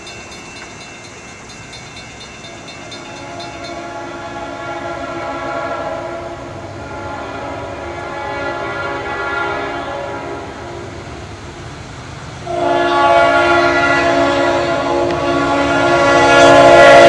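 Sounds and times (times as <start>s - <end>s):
locomotive air horn blasts: 3.0s - 10.9s, 12.4s - 17.0s.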